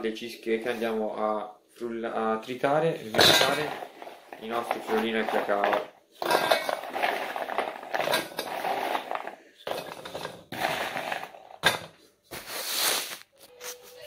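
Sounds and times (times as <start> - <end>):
biscuits crunching in metal pot: 3.1 - 11.7.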